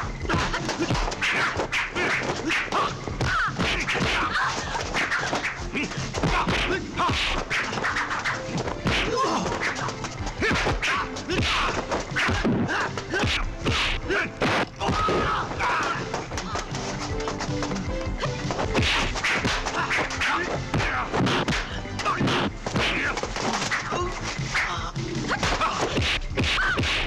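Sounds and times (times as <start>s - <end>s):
punch and kick whacks: 0.3s - 9.7s, 10.4s - 15.3s, 18.7s - 23.8s, 25.3s - 27.0s.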